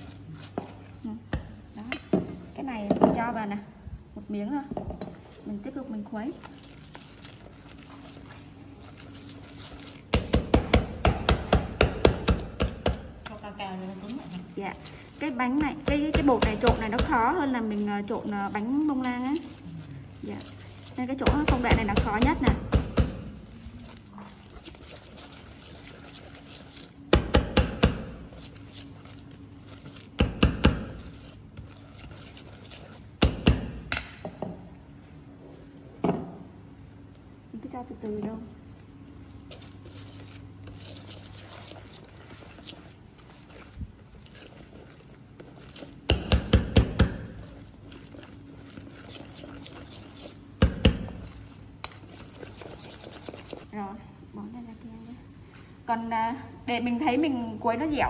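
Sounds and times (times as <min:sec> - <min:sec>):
soft stirring: 0:00.0 - 0:33.9, 0:34.6 - 0:54.0
whisk clinking against metal bowl: 0:39.5 - 0:53.7.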